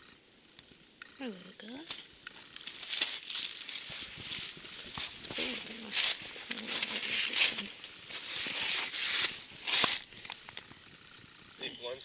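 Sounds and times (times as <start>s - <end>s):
dry leaves rustling: 1.2s - 11.4s
person murmuring: 5.2s - 7.8s.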